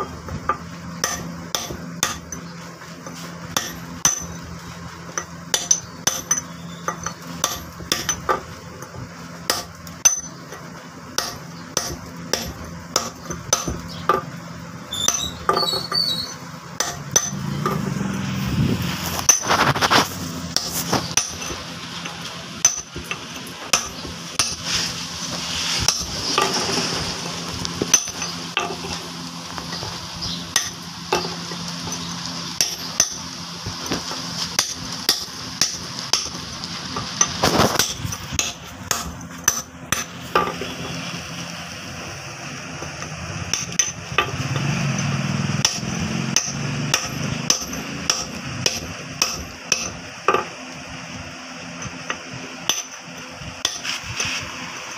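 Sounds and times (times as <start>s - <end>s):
hammer and chisel tapping stone: 11.2s - 14.3s, 45.6s - 50.5s
rough noise: 14.9s - 50.0s, 53.6s - 54.9s.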